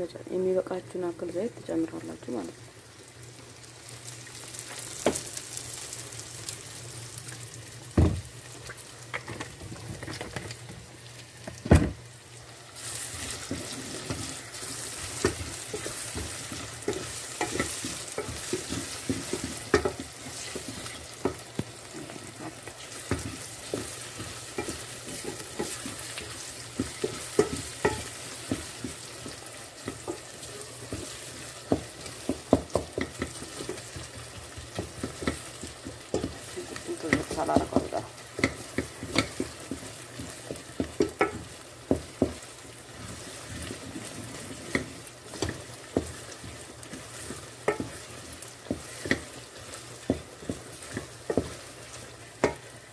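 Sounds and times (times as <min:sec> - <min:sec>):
onions sizzling in oil: 0:00.0 - 0:52.9
wooden spoon scraping a pot: 0:12.8 - 0:52.7.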